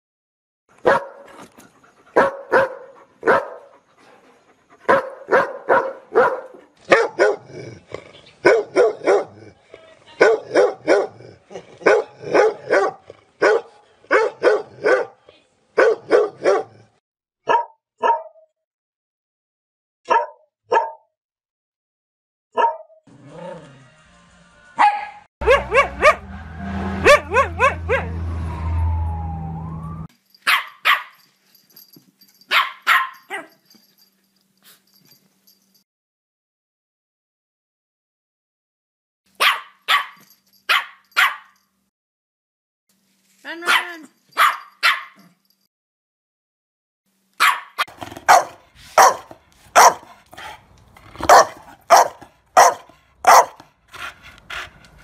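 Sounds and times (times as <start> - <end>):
dogs barking: 0.8 - 1.3, 2.1 - 3.7, 4.8 - 7.8, 8.4 - 9.6, 10.2 - 15.2, 15.8 - 18.4, 20.1 - 21.0, 22.6 - 23.0, 24.8 - 28.3, 30.5 - 31.2, 32.5 - 33.6, 39.4 - 41.6, 43.7 - 45.2, 47.4 - 53.7.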